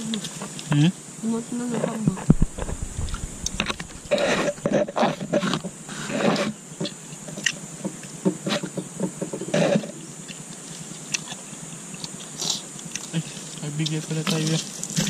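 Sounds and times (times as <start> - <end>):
low murmurs: 1.8 - 5.2
people chewing: 2.1 - 8.7, 9.4 - 15.0.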